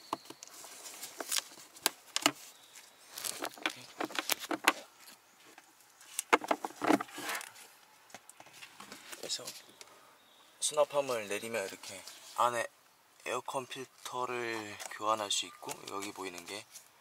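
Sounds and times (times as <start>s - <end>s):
handling rustle: 0.0s - 9.8s.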